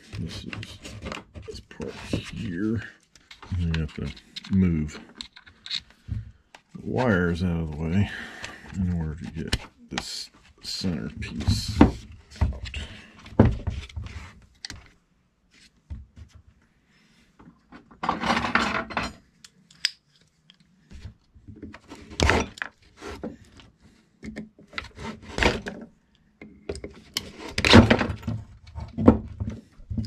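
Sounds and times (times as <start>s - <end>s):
plastic and metal scraping: 0.0s - 6.2s.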